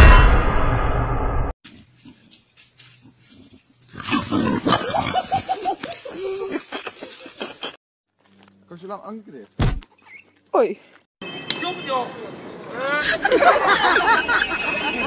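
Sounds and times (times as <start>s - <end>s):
pig grunting and squealing: 3.9s - 5.3s.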